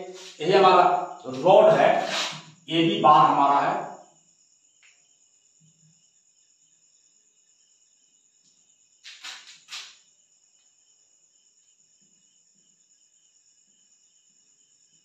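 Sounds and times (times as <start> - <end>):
rasping noise: 0.0 - 2.5
crickets chirping: 0.0 - 15.0.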